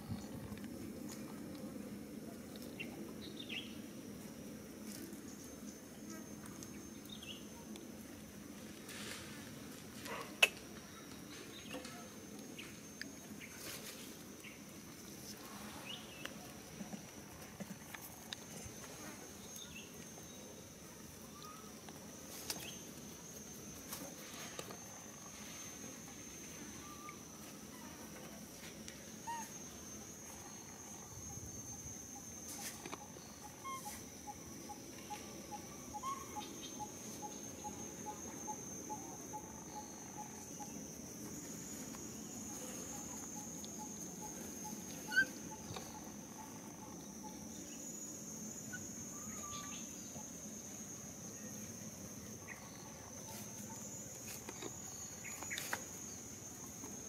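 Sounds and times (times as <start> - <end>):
high-pitched insect drone: 19.2 - 57.0.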